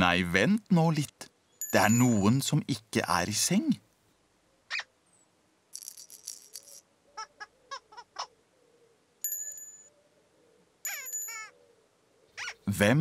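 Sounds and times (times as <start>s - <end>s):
bright bell-like ring: 1.6s - 2.3s, 9.2s - 9.9s, 10.9s - 11.5s
squeaky pitched chirps: 10.9s - 11.6s, 12.4s - 12.7s.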